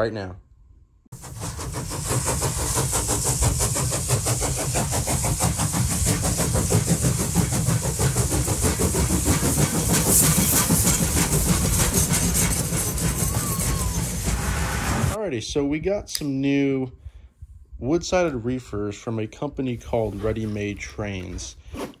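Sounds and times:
train running rhythmically: 1.2 - 15.2.

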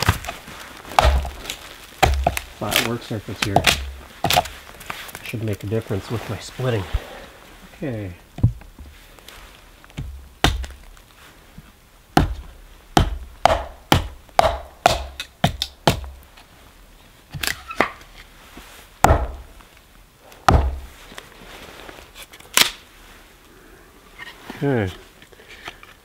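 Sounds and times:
axe chopping wood: 0.0 - 4.5, 9.9 - 10.8, 12.2 - 16.2, 19.0 - 19.4, 20.5 - 20.9.

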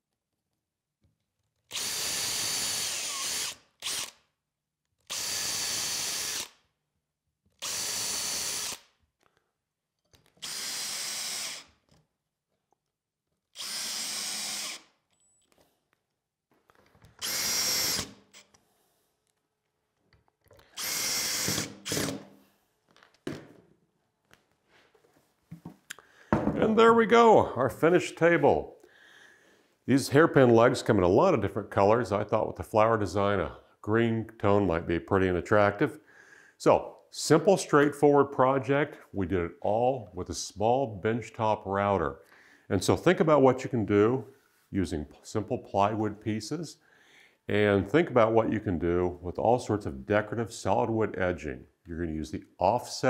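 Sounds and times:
cordless drill whining: 1.6 - 4.2, 5.1 - 6.6, 7.5 - 8.9, 10.3 - 11.8, 13.5 - 15.6, 17.1 - 18.6, 20.6 - 22.3.

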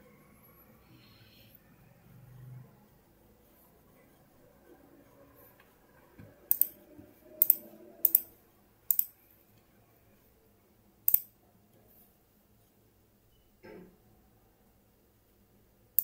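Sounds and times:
mouse button clicking: 6.5 - 6.8, 7.4 - 8.2, 8.9 - 9.1.

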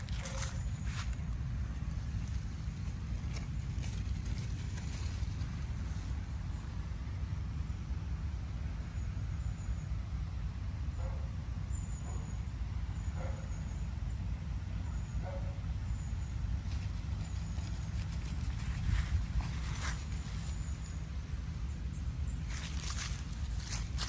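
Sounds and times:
dry leaves crackling underfoot: 0.0 - 6.0, 16.6 - 21.1, 22.3 - 24.0
steady low rumble: 0.0 - 15.1, 15.7 - 24.0.

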